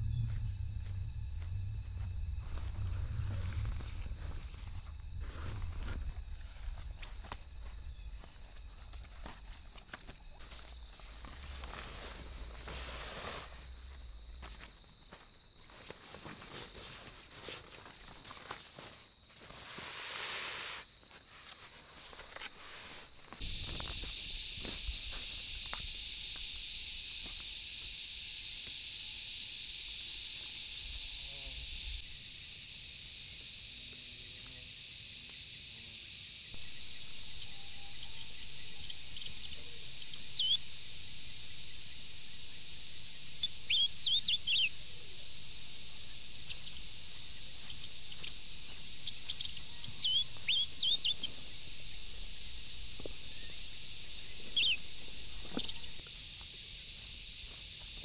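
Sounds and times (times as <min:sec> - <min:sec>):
steady high-pitched hiss: 0:00.0 - 0:58.0
bird chirping: 0:36.6 - 0:40.6, 0:43.4 - 0:44.7, 0:49.0 - 0:51.3, 0:53.3 - 0:56.0.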